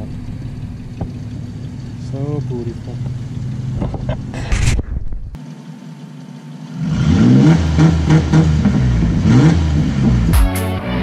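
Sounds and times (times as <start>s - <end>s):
pickup engine revving: 6.6s - 10.4s.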